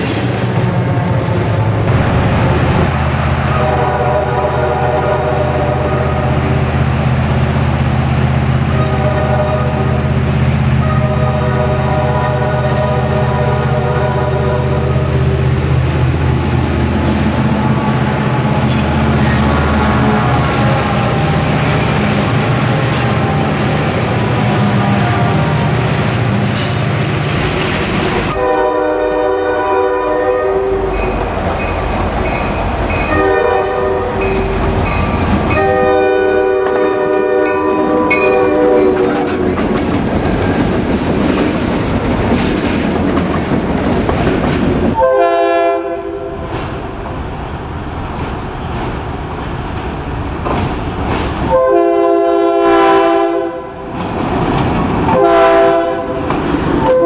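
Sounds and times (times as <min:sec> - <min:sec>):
train engine and wheel rumble: 0:00.0 - 0:57.0
locomotive air horn blasts: 0:03.5 - 0:06.4, 0:08.7 - 0:10.1, 0:10.8 - 0:15.4, 0:17.0 - 0:23.7, 0:24.3 - 0:25.8, 0:28.1 - 0:30.9, 0:33.1 - 0:34.3, 0:35.5 - 0:39.3, 0:45.0 - 0:46.6, 0:51.5 - 0:53.8, 0:55.1 - 0:57.0.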